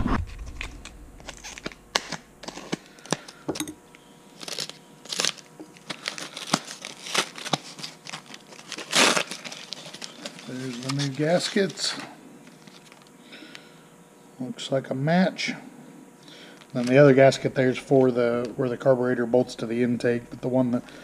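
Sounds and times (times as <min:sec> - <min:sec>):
packet crinkling: 0:00.4 - 0:03.4, 0:04.3 - 0:13.6, 0:16.4 - 0:18.5.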